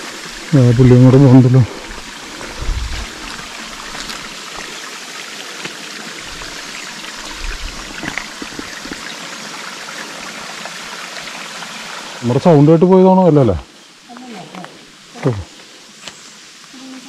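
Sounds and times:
waterfall trickling and splashing: 0.0 - 17.0
low thumps: 1.9 - 3.4.

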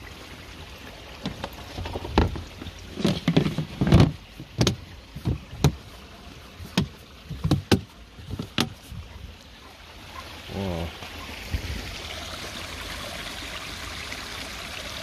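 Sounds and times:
plastic lid knocks and clacks: 3.0 - 5.8, 6.7 - 8.8.

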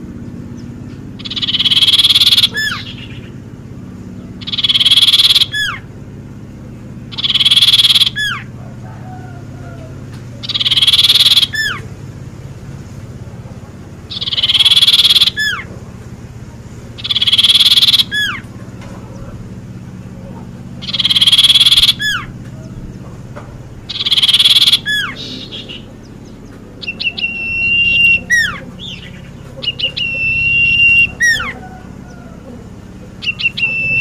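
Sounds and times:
songbird rasping and whistling: 0.0 - 3.5, 4.1 - 5.9, 6.7 - 12.0, 14.1 - 15.7, 16.9 - 18.5, 20.8 - 34.0.

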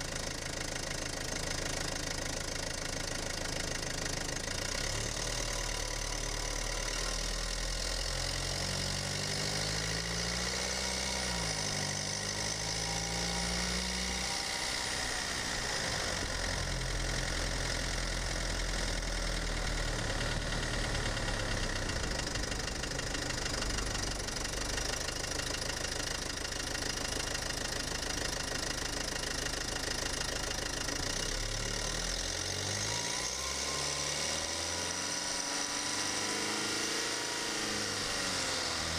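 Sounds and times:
diesel engine running: 10.9 - 33.0.

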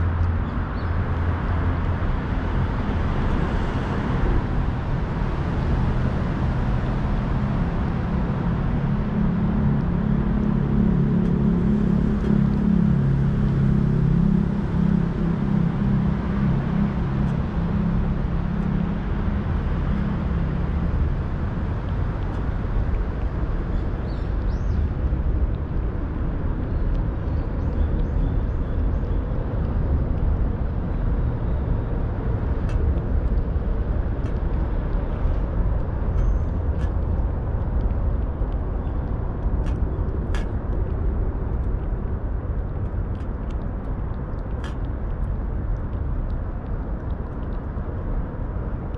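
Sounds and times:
low outdoor rumble: 0.0 - 48.9
cat licking and chewing food: 20.9 - 48.9.

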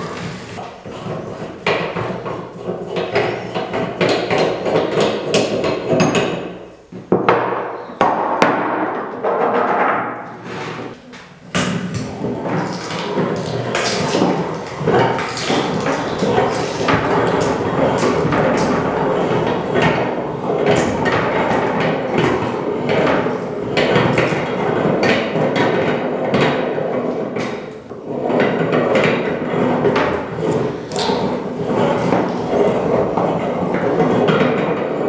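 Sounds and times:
meat grinder crushing carrots: 11.9 - 24.5.

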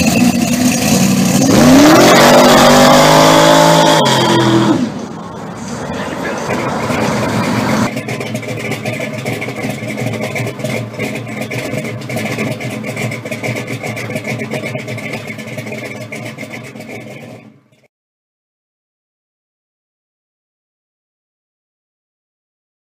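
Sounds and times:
car engine running: 0.0 - 17.8.

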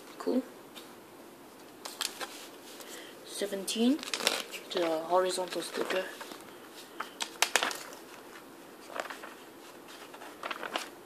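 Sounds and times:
paper pages rustling: 1.6 - 3.0, 3.8 - 11.0.

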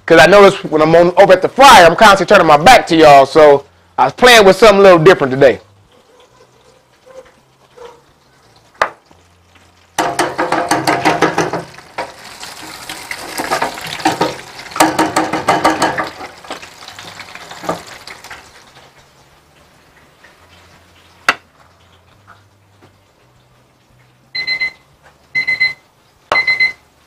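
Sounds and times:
oil sizzling in deep fryer: 0.0 - 27.0
loud sizzling bursts: 8.2 - 21.3.

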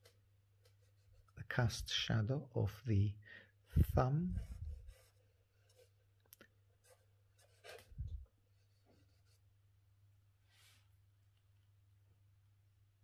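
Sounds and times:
drawing tool scratching paper: 0.0 - 1.4, 4.3 - 6.0, 6.8 - 8.0, 8.6 - 9.5.

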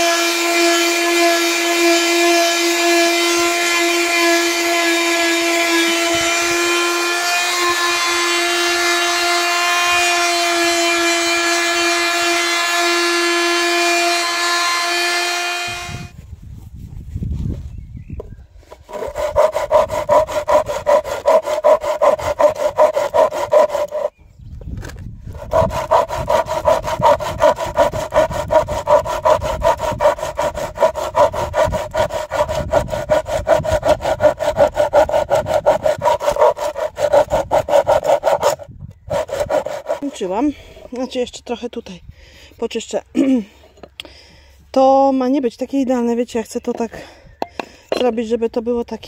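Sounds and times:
hand saw cutting wood: 0.0 - 16.1, 18.7 - 24.1, 25.3 - 41.1.

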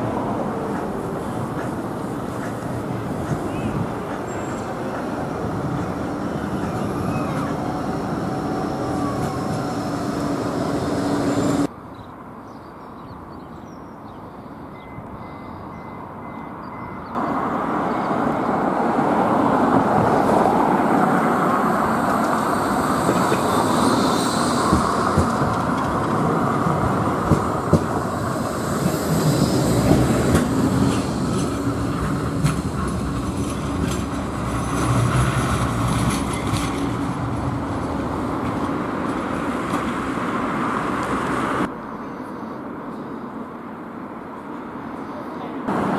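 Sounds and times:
tram motor hum: 0.0 - 11.7, 15.7 - 41.7
wheels clicking on rail joints: 0.0 - 11.7, 19.8 - 41.4.

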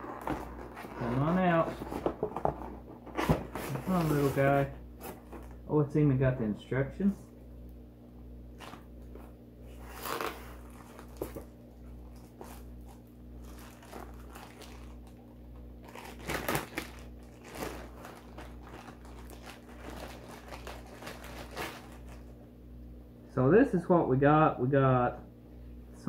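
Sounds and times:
steady low hum: 0.0 - 26.0
plastic bag crinkling: 3.6 - 5.6, 9.7 - 22.4.

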